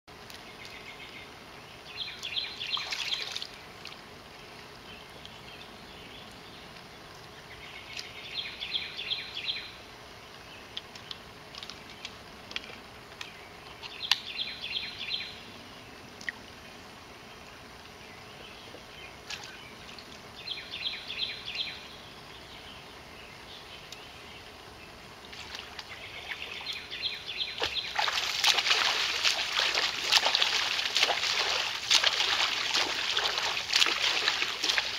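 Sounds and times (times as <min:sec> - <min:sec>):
outdoor background: 0:00.1 - 0:34.9
swimmer splashing water: 0:02.6 - 0:04.2, 0:25.2 - 0:34.9.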